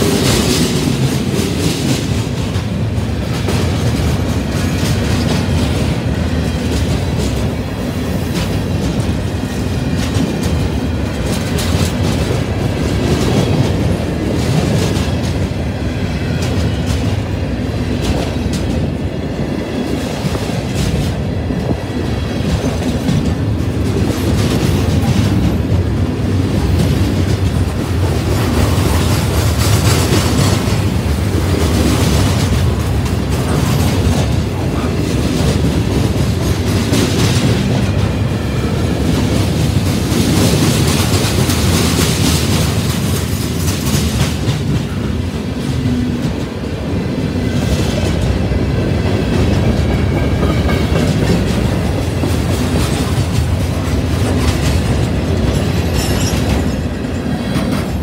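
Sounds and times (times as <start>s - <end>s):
wheels clacking over rail joints: 0.0s - 46.7s, 47.4s - 58.0s
train wheels rumbling on rails: 0.0s - 58.0s.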